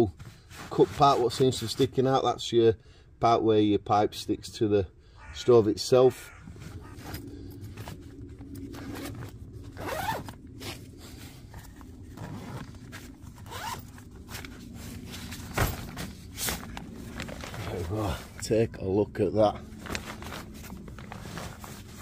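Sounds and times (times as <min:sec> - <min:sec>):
zipper being pulled open: 0:06.7 - 0:14.9.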